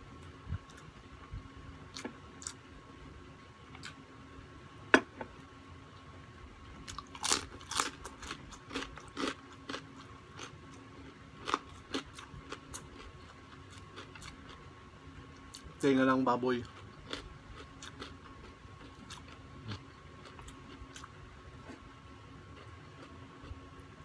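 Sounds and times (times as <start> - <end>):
person chewing crunchy food: 6.8 - 14.6, 16.6 - 23.7.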